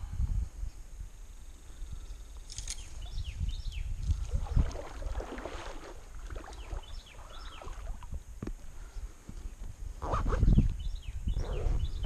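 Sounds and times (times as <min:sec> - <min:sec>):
birds chirping: 0:01.5 - 0:08.1, 0:08.8 - 0:12.0
water lapping around kayak: 0:04.0 - 0:08.2.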